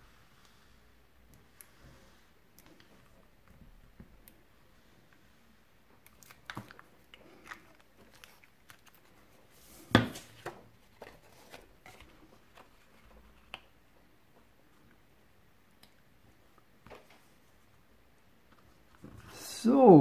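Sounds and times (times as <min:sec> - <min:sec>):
paper rustling: 0:06.1 - 0:13.6.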